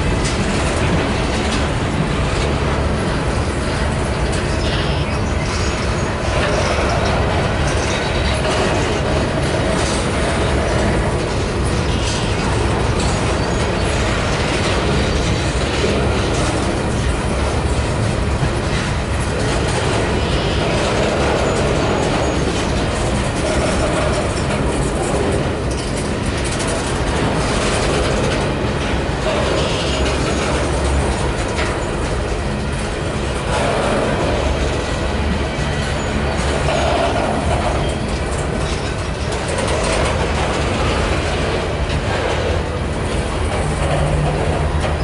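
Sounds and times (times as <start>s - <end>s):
train wheels clattering on rails: 0.0s - 45.0s.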